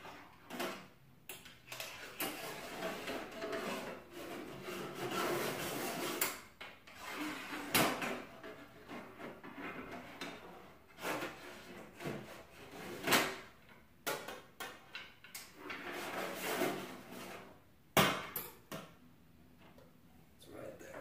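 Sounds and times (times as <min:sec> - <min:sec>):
rustling and scraping: 0:01.7 - 0:13.5, 0:14.8 - 0:17.7.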